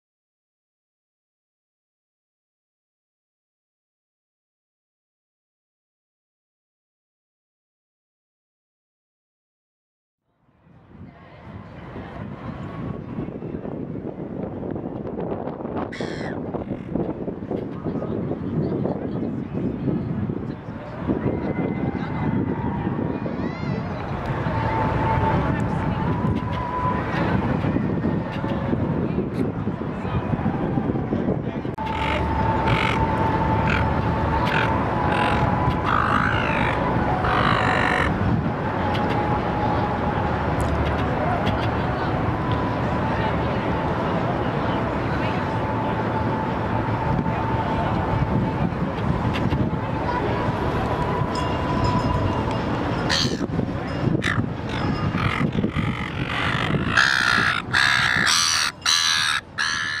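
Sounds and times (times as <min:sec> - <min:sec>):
gulls calling: 0:15.9 - 0:16.9, 0:31.8 - 0:38.2, 0:53.0 - 0:53.5, 0:54.2 - 1:00.0.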